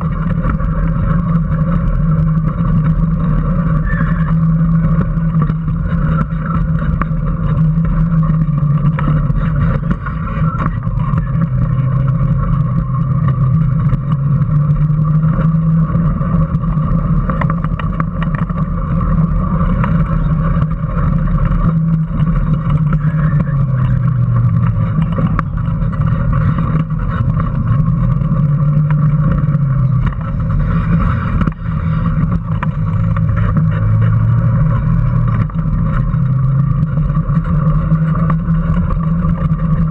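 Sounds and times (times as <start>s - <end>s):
electric motor whine: 0.0s - 39.9s
road and wind noise: 0.0s - 39.9s.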